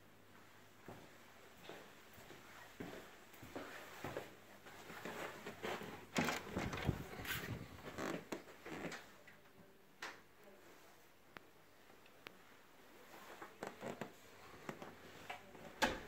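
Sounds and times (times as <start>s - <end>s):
footsteps: 0.8s - 8.8s.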